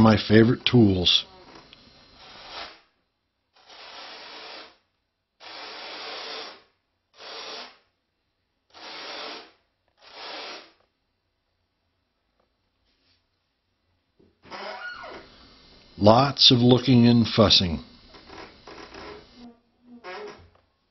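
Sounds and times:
sandpaper rasping on foam: 2.2 - 2.9, 3.6 - 4.8, 5.4 - 7.8, 8.7 - 10.8.

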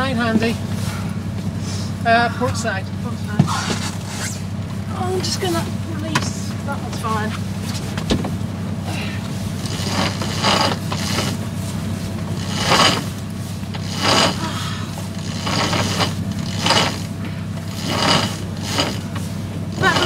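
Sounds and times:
winch ratcheting and scraping: 2.4 - 20.0
lines running out: 9.2 - 20.0.

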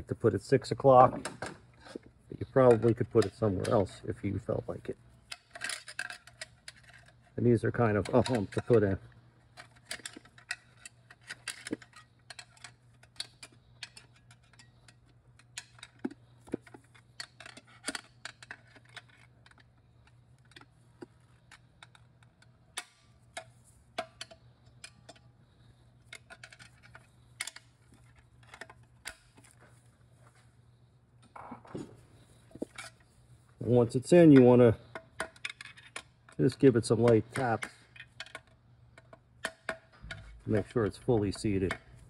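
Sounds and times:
small metallic clicks: 7.9 - 29.6.

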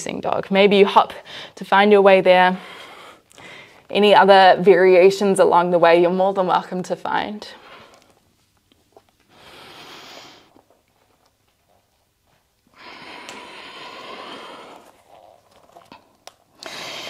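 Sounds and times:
person breathing: 1.2 - 1.6, 2.6 - 3.9, 9.3 - 10.5, 12.7 - 15.0, 16.6 - 17.0.

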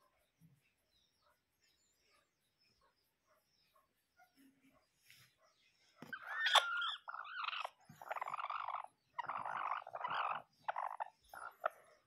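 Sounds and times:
chicken squawking: 6.1 - 11.7.

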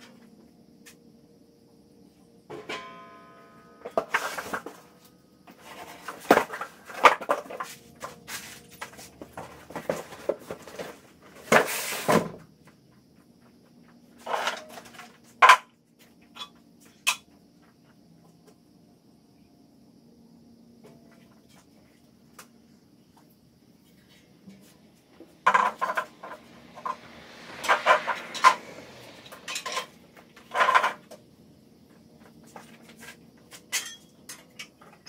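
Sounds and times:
cardboard rustling and scraping: 5.5 - 12.3.

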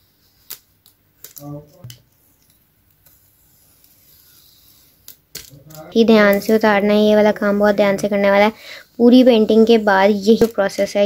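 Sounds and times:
tape peeling off paper: 0.2 - 1.6.

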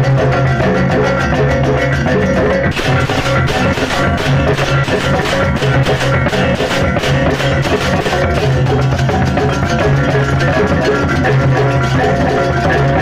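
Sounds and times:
drums: 0.0 - 13.0
gamelan ensemble playing: 0.0 - 13.0
hand cymbals clashing: 2.7 - 9.6.

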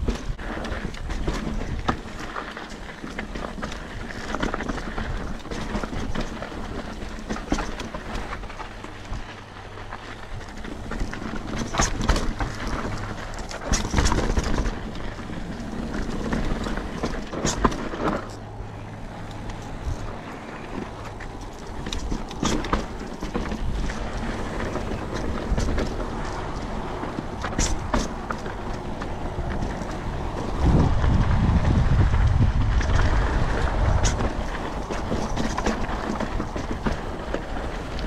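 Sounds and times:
bike clattering over bumps: 0.0 - 38.0
bike tyres on dirt trail: 0.0 - 38.0
wind on microphone: 18.6 - 38.0.

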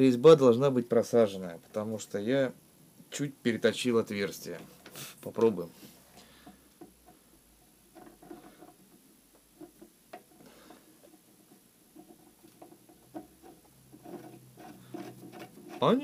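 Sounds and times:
metallic clicks and scraping: 6.4 - 16.0.

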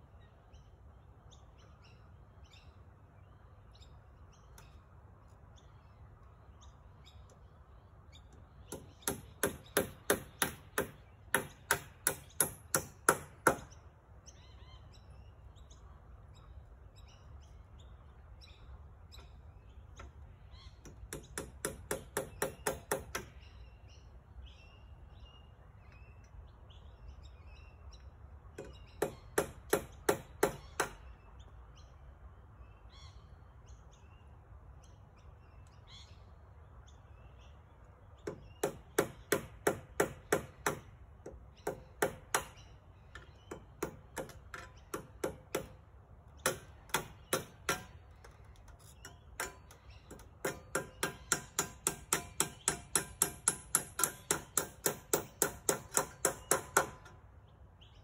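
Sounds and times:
birds chirping faintly: 0.0 - 58.0
hammer striking nails: 8.7 - 13.7, 20.8 - 23.3, 28.6 - 31.0, 38.3 - 40.9, 41.6 - 42.6, 43.2 - 45.8, 46.4 - 48.4, 49.4 - 57.2.

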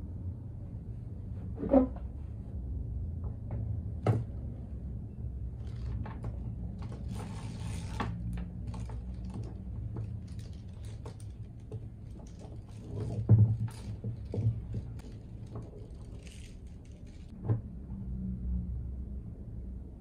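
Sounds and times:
plastic beads clicking and rattling: 6.7 - 17.3.

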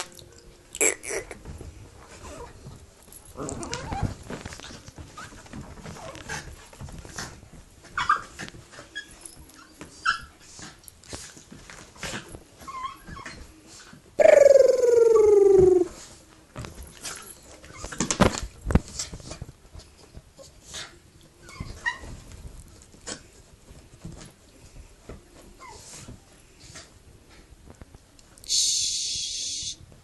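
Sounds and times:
dog yipping: 8.0 - 8.4
dog whining: 14.2 - 16.1.

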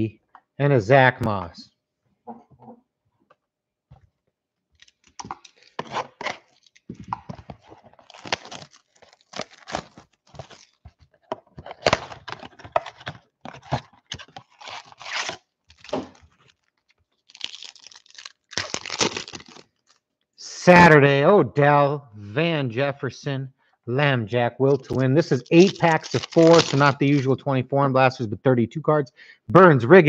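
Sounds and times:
foil packs crinkling: 4.8 - 20.0, 24.7 - 27.3
cardboard box tearing open: 5.8 - 6.7, 8.0 - 10.9, 11.6 - 16.2, 17.3 - 19.6, 24.8 - 27.0.

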